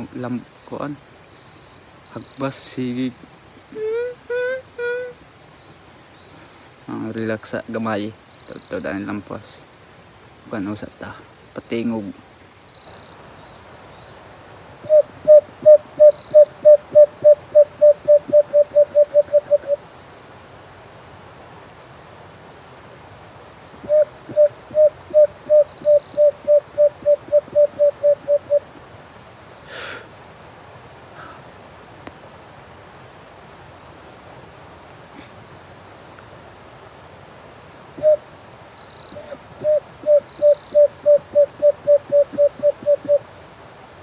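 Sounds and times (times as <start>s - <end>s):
hand-blown hooting bird call: 3.8s - 5.2s, 14.8s - 19.8s, 23.8s - 28.8s, 38.0s - 38.2s, 39.2s - 43.2s.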